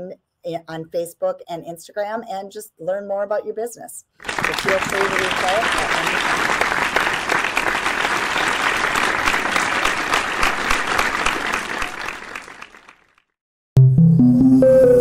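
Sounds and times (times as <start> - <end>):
crowd applauding: 4.2 - 13.2
ambient music with bell-like tones: 13.8 - 15.0.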